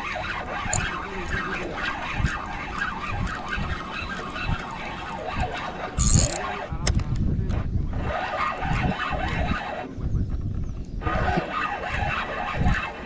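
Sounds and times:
spinning reel cranking: 0:00.0 - 0:06.5.

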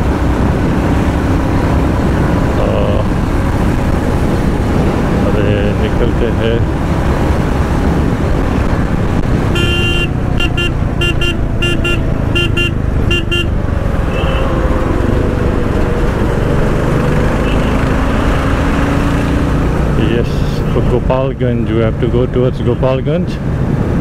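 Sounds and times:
wind rush: 0:00.0 - 0:21.1, 0:22.6 - 0:24.0
vehicle horn beeping: 0:09.5 - 0:14.6, 0:17.4 - 0:17.8.

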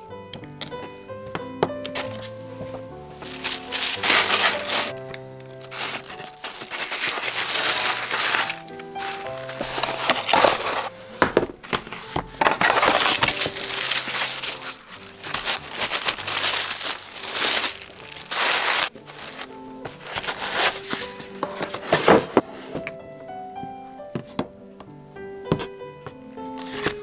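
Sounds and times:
soft background music: 0:00.0 - 0:27.0
tissue paper rustling and crinkling: 0:02.0 - 0:22.8, 0:26.6 - 0:27.0.

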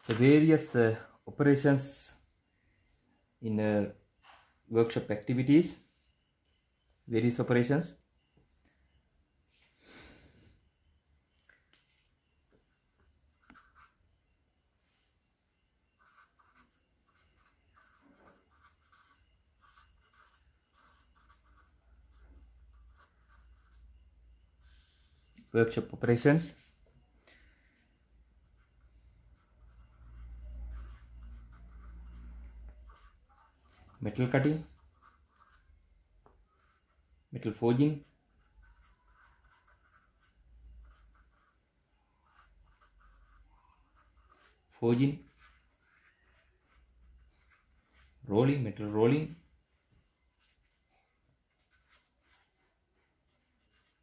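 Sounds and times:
marker scratching on paper: 0:12.7 - 0:14.0, 0:15.9 - 0:25.4, 0:28.4 - 0:48.3, 0:50.3 - 0:54.0.

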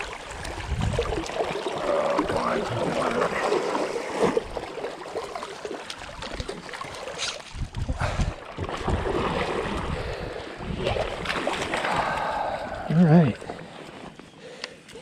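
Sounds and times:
stream water splashing: 0:00.0 - 0:14.2
wind buffeting microphone: 0:00.3 - 0:01.2, 0:07.5 - 0:11.2.

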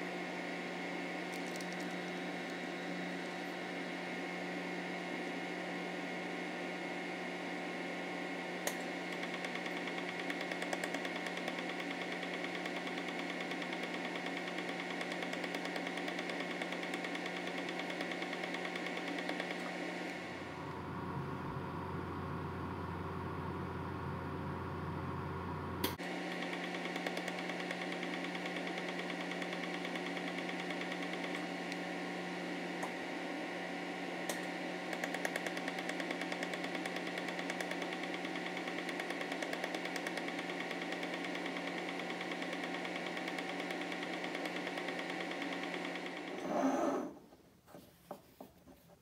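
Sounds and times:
welding machine humming: 0:07.4 - 0:46.4.

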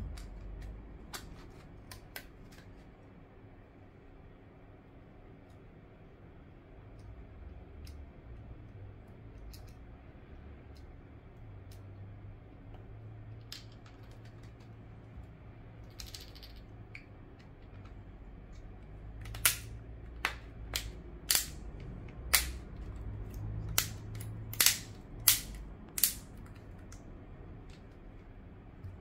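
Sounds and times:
sharp clicks of cover clips: 0:18.6 - 0:27.0.

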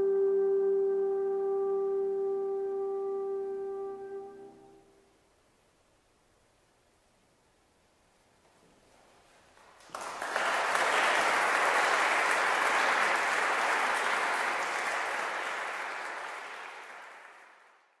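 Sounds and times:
audience applauding: 0:09.6 - 0:18.0.

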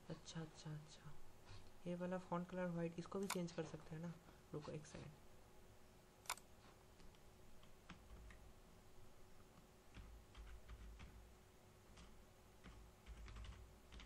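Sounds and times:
computer keyboard clicking: 0:09.9 - 0:11.2, 0:11.9 - 0:14.0.

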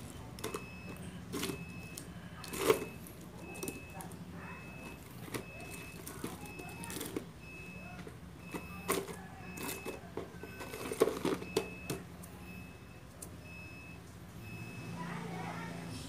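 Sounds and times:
dishes clicking and knocking: 0:08.0 - 0:12.0.

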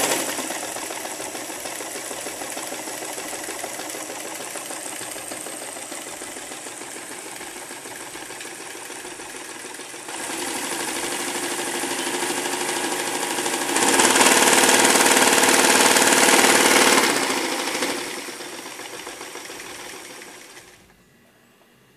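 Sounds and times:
sewing machine running: 0:00.0 - 0:21.0.

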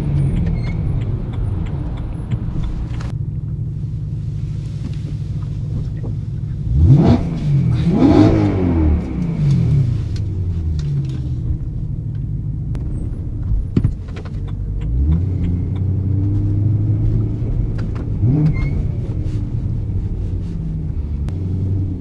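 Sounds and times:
car engine running inside cabin: 0:00.0 - 0:22.0
light clicks in car cabin: 0:00.3 - 0:03.2, 0:12.1 - 0:16.6.

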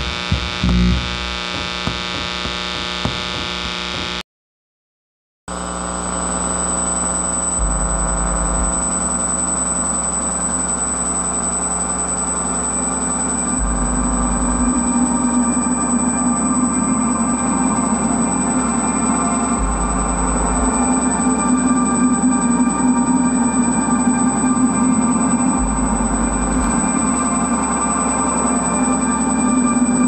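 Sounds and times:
electrical hum: 0:00.0 - 0:04.2, 0:06.0 - 0:30.0
thin high whine: 0:00.0 - 0:04.2, 0:06.0 - 0:30.0
low rumble: 0:07.6 - 0:09.4, 0:13.6 - 0:28.6.

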